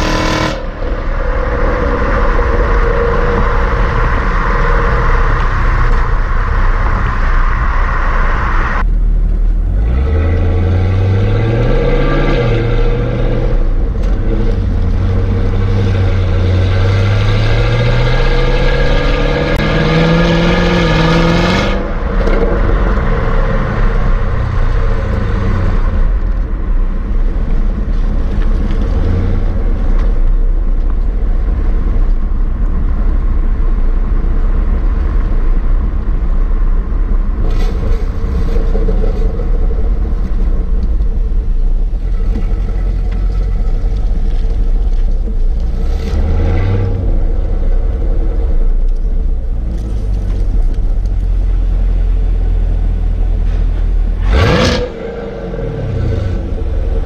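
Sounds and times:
road noise: 0.0s - 57.0s.

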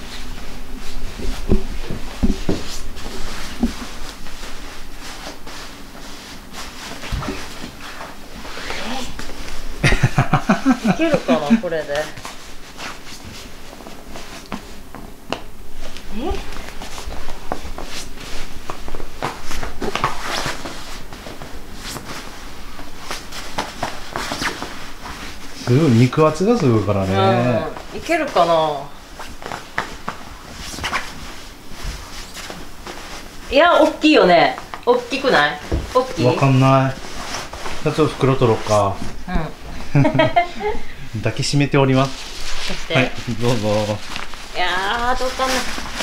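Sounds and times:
sleeping bag fabric rustling: 0.0s - 9.9s, 10.6s - 40.9s, 41.8s - 46.0s
soft thumps: 1.2s - 4.0s.

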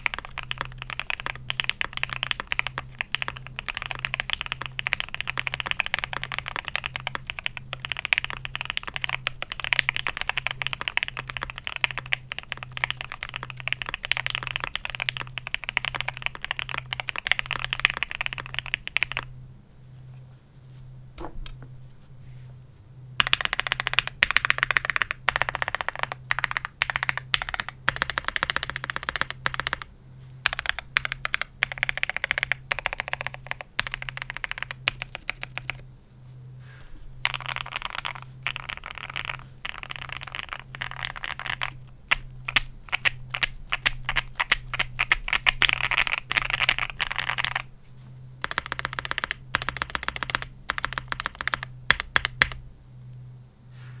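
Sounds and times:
mechanical keyboard typing: 0.0s - 19.3s, 23.2s - 35.8s, 37.2s - 47.7s, 48.4s - 52.6s.

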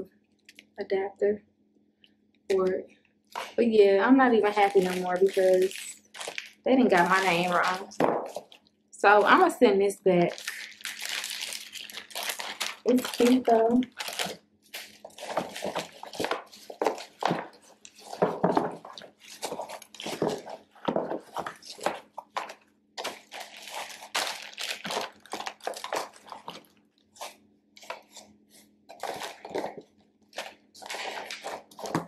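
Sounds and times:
plastic packaging crinkling: 3.3s - 9.6s, 10.2s - 28.3s, 28.9s - 32.0s.

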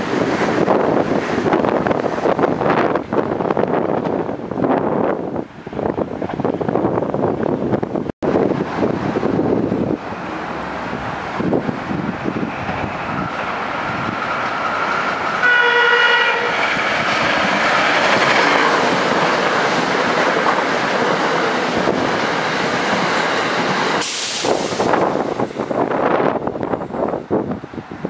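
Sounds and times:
train wheels rushing on rail: 0.0s - 28.0s
train horn blast: 15.4s - 16.6s.

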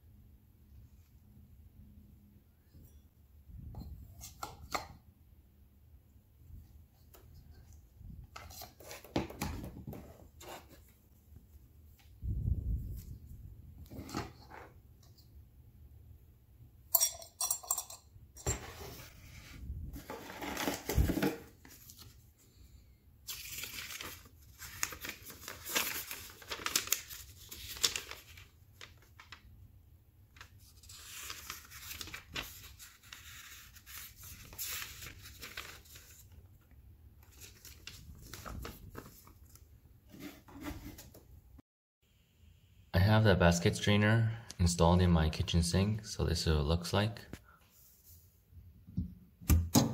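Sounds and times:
paper pages rustling: 23.3s - 29.5s, 30.3s - 36.6s, 37.2s - 41.2s.

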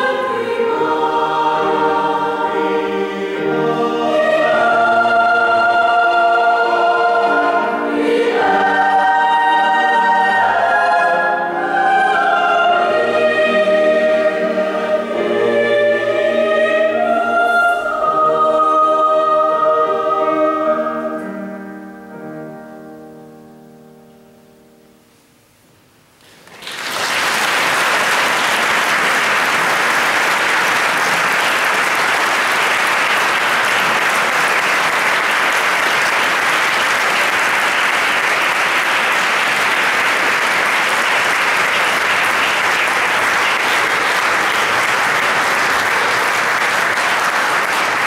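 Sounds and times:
choir chord: 0.0s - 25.2s
audience applause: 26.3s - 48.0s.

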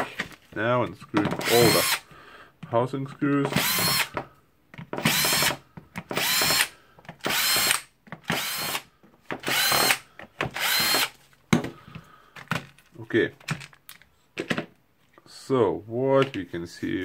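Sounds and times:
cordless drill whining: 1.4s - 2.1s, 3.5s - 4.2s, 5.0s - 11.2s.

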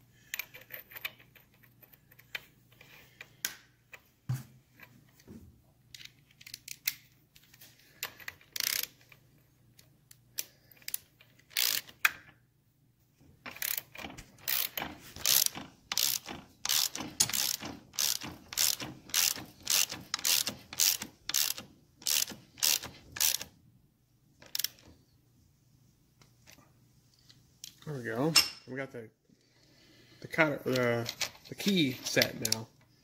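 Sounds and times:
ratchet wrench clicking: 8.1s - 9.1s, 10.4s - 12.0s, 13.5s - 23.5s, 24.4s - 24.8s.

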